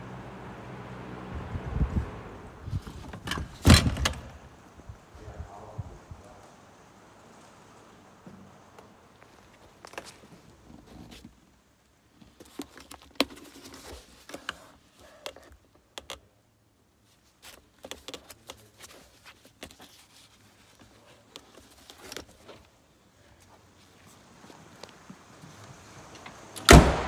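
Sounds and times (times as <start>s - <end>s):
handling clicks and taps: 12.3s - 16.3s, 17.5s - 19.9s
pages being leafed through: 17.2s - 22.8s.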